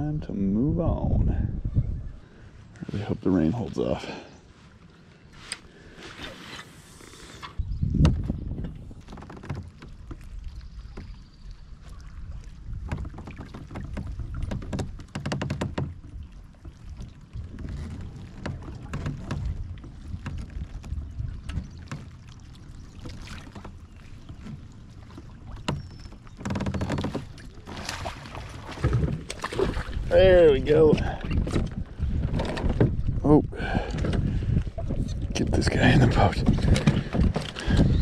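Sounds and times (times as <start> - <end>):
wind rumble on microphone: 0.0 - 3.1, 7.5 - 22.5, 27.3 - 38.0
paddle splashing in water: 4.8 - 38.0
knocks against plastic hull: 7.9 - 9.9, 12.8 - 16.0.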